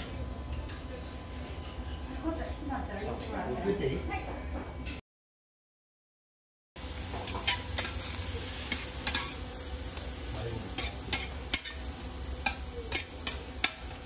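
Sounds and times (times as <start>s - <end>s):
food sizzling on a griddle: 6.8s - 14.0s
steel clicking on griddle: 7.0s - 14.0s.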